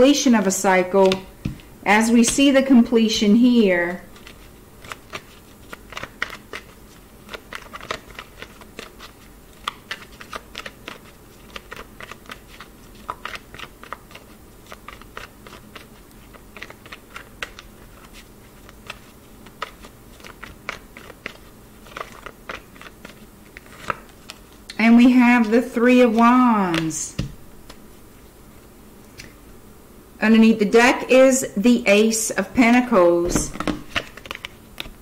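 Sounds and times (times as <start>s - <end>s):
cards being shuffled: 4.1s - 27.8s, 32.6s - 35.0s.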